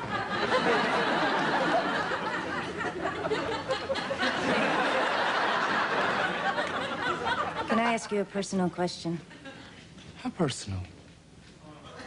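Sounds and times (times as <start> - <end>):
studio audience laughing: 0.0 - 8.0.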